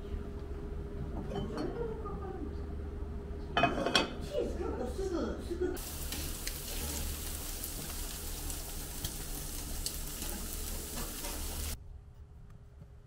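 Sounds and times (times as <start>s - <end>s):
meat sizzling on a grill: 5.8s - 11.8s.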